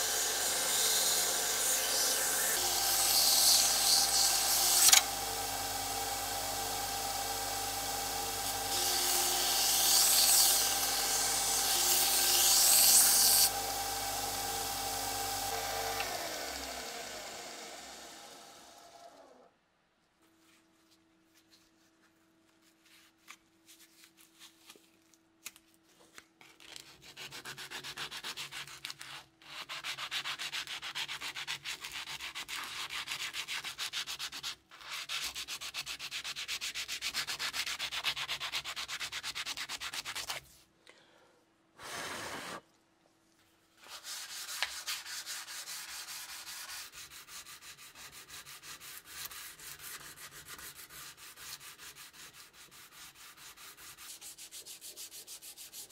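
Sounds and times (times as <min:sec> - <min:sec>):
sandpaper scraping steel: 0:43.8 - 0:55.9.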